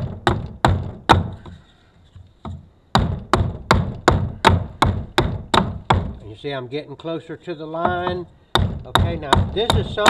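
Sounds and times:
hatchet chopping wood: 0:00.0 - 0:01.5, 0:02.4 - 0:06.2, 0:07.8 - 0:10.0.

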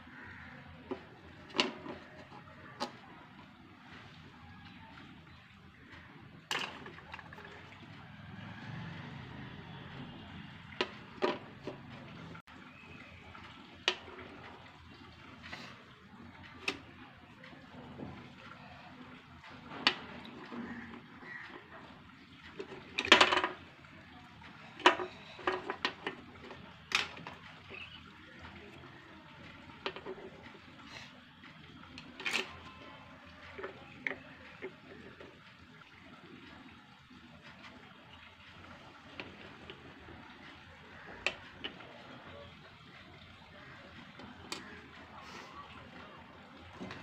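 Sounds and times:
plastic toy pots clicking: 0:00.8 - 0:03.5, 0:06.4 - 0:07.8, 0:10.7 - 0:11.9, 0:16.5 - 0:17.0, 0:19.5 - 0:23.7, 0:24.5 - 0:30.9, 0:31.9 - 0:35.4, 0:38.6 - 0:42.3, 0:43.8 - 0:45.0
plastic toys tapping on hard surface: 0:22.8 - 0:23.6.

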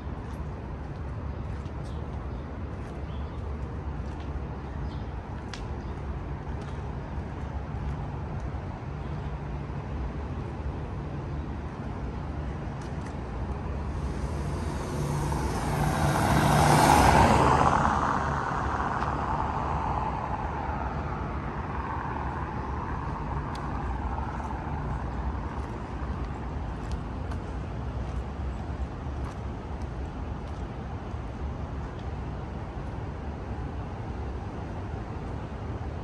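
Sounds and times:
low traffic hum: 0:00.0 - 0:36.0
vehicle driving past: 0:13.8 - 0:26.0.

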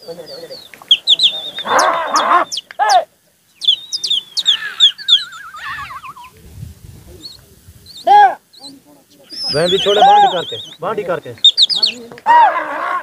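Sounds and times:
men shouting together: 0:01.6 - 0:03.2, 0:08.0 - 0:08.4, 0:12.2 - 0:13.0.

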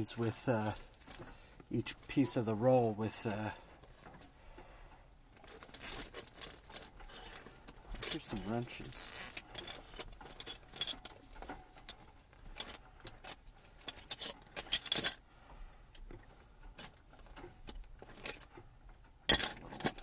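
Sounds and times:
tool roll rustling: 0:00.0 - 0:04.6, 0:05.3 - 0:15.2
metal tools clinking: 0:05.4 - 0:15.2, 0:16.6 - 0:18.6, 0:19.2 - 0:20.0.

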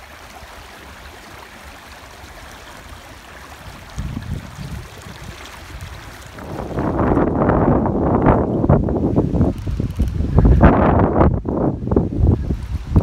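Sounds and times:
water splashing along canoe hull: 0:00.0 - 0:10.5
wind buffeting microphone: 0:03.6 - 0:13.0.

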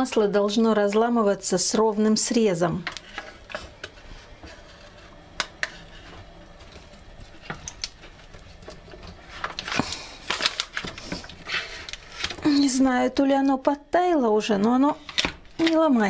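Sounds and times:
paper rustling: 0:08.0 - 0:12.5.

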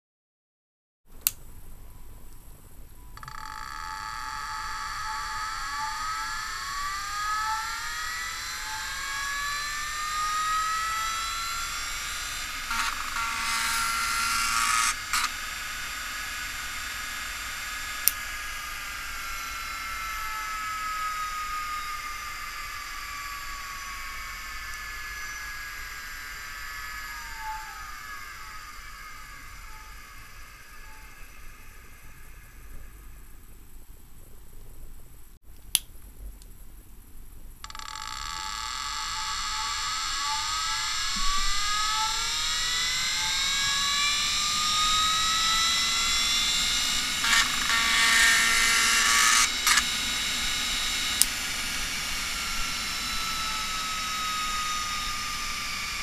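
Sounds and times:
hard drive spindle whine: 0:01.6 - 0:34.1, 0:37.3 - 0:56.0
stepper motor buzzing: 0:03.2 - 0:33.4, 0:37.6 - 0:56.0
sharp click: 0:47.2 - 0:49.9.

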